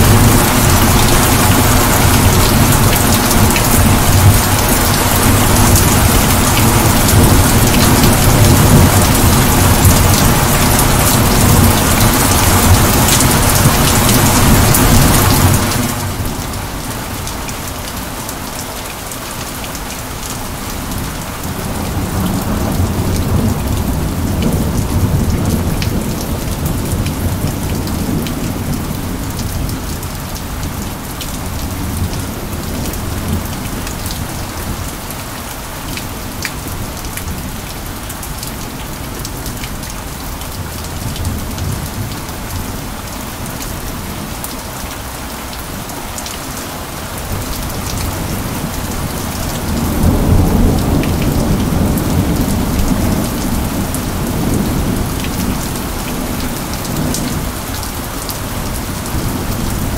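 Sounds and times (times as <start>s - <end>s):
rolling thunder: 0.0s - 16.1s
steady rain falling: 0.0s - 59.9s.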